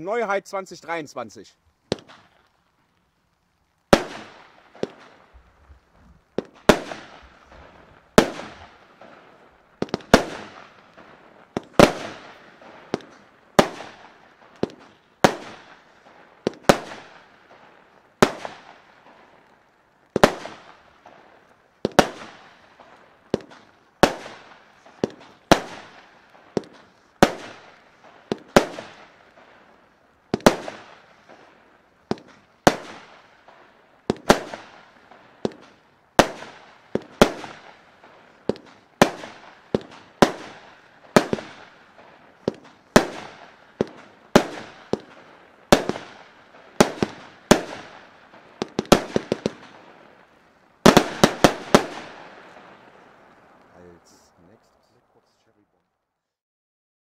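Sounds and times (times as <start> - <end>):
firework battery bangs: 3.8 - 9.2, 9.8 - 11.0, 11.6 - 15.8, 38.5 - 41.7, 42.4 - 49.8, 50.8 - 52.3.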